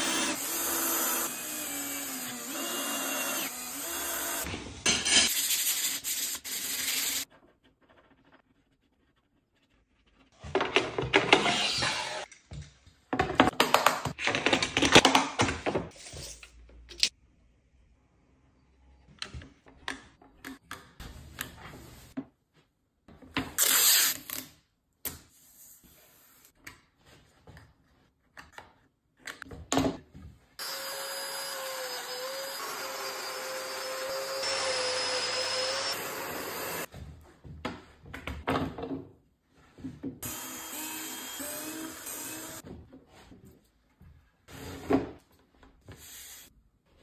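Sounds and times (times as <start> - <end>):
power tool with dust extraction: 0.0 - 4.5, 30.6 - 36.9, 40.2 - 42.6.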